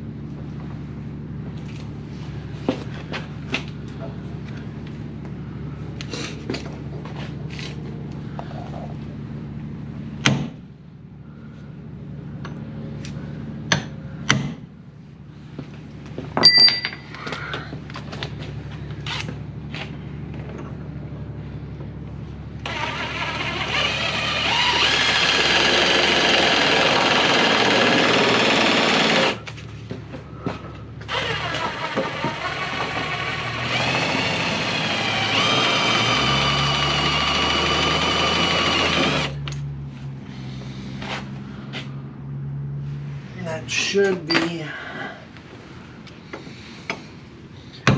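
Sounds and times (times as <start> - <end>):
hammer striking metal punch: 16.4 - 17.2
handheld power tool running: 22.6 - 29.5, 31.1 - 39.5.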